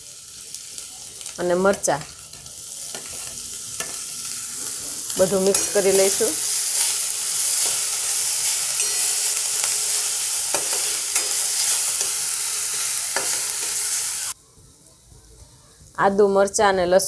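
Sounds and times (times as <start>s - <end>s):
oil sizzling in a pan: 0.0s - 14.4s
metal spatula scraping a pan: 1.7s - 14.3s.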